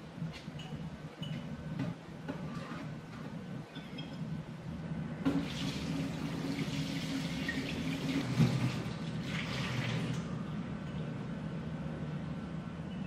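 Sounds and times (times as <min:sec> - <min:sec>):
tap water running into a sink: 0:05.3 - 0:10.2.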